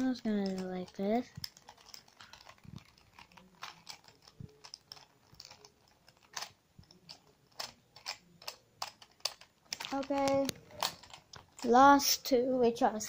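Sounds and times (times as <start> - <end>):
puzzle cube clicking as twisted: 0.0 - 11.7.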